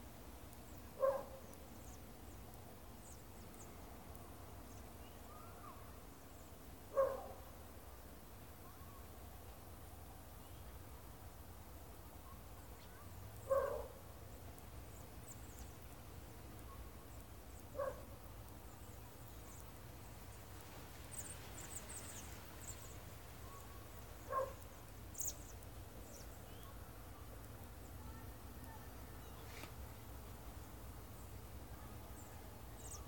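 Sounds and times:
small birds chirping: 0.4s - 7.3s, 12.5s - 33.0s
distant dog barking: 1.0s - 1.4s, 6.9s - 7.4s, 13.5s - 14.0s, 17.8s - 18.1s, 24.3s - 24.7s.

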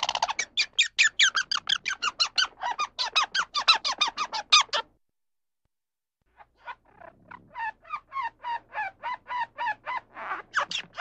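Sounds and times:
squirrel chirping: 0.0s - 4.8s.

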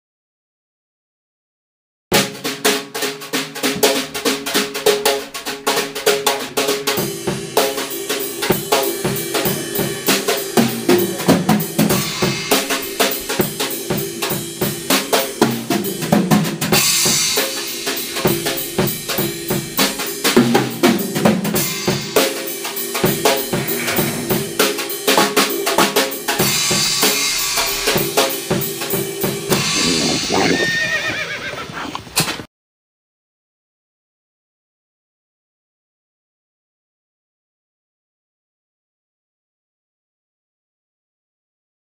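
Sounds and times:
drum kit beat: 2.1s - 30.9s.

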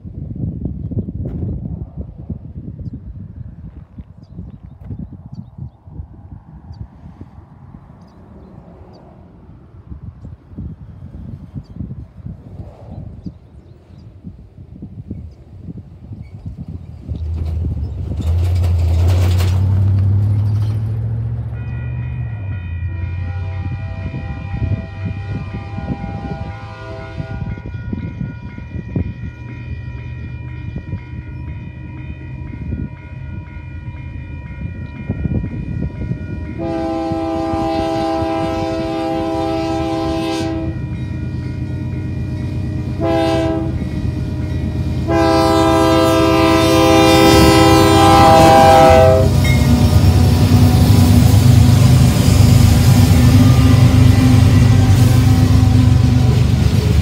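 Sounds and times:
train rumble: 0.0s - 57.0s
crossing bell ringing: 20.2s - 24.7s, 27.4s - 37.0s, 40.5s - 46.4s
train horn blasts: 21.4s - 32.4s, 35.2s - 56.9s.

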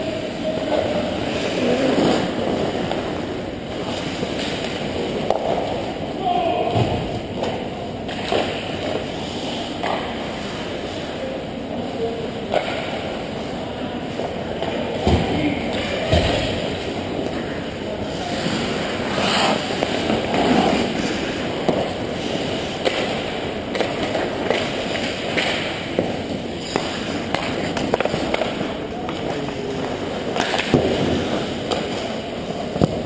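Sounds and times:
low rink noise: 0.0s - 33.0s
hockey sticks and puck clacking: 0.5s - 6.0s, 7.3s - 11.0s, 12.4s - 17.4s, 18.0s - 33.0s
skates scraping on ice: 0.6s - 5.9s, 18.0s - 33.0s.

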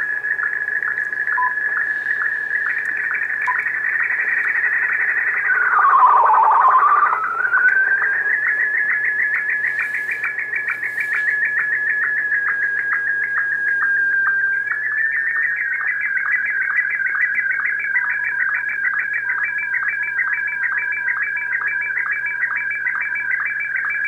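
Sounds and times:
radio whistling tone: 0.0s - 17.5s
rapid regular ticking: 0.2s - 9.6s.

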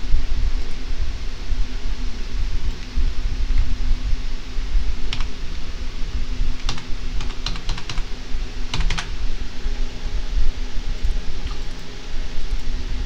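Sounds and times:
low background hum: 0.0s - 13.0s
computer keyboard keys clicking: 5.1s - 5.4s, 6.6s - 9.2s.

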